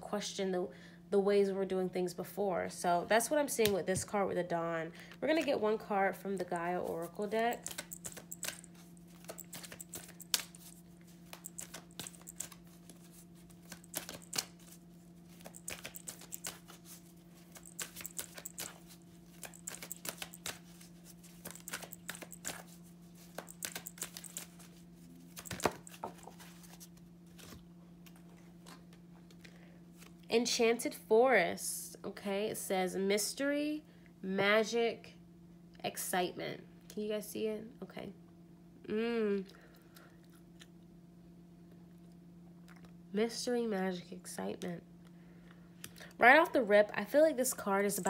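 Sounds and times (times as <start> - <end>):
cards being shuffled: 6.5 - 28.2.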